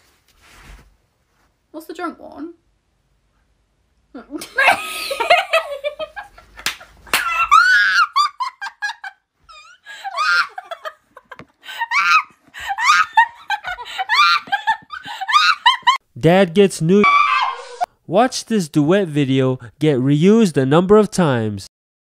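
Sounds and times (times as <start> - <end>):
young women laughing: 4.2 - 16.0.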